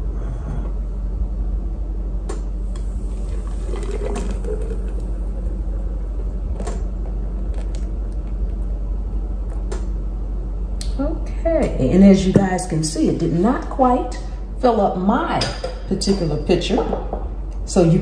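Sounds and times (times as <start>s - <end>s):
steady low hum: 0.0s - 18.0s
custard pouring into a pitcher: 3.1s - 5.6s.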